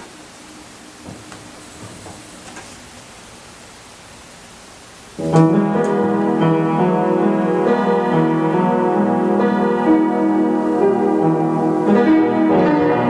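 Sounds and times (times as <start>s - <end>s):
faint room hiss: 0.0s - 13.0s
upright piano playing chords: 5.1s - 13.0s.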